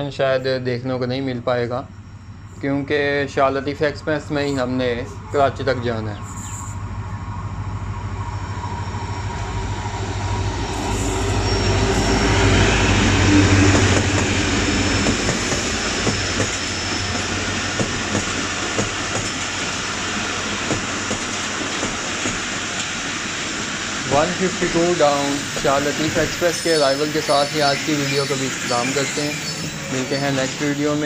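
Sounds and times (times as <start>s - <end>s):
locomotive engine drone: 0.0s - 31.0s
train wheels clacking over rail joints: 13.6s - 14.4s, 15.0s - 19.8s, 20.6s - 23.0s.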